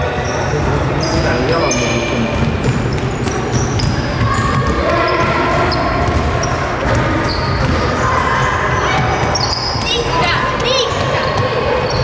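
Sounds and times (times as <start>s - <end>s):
sneakers squeaking: 0.0s - 12.0s
basketball bouncing on hardwood: 2.3s - 7.9s.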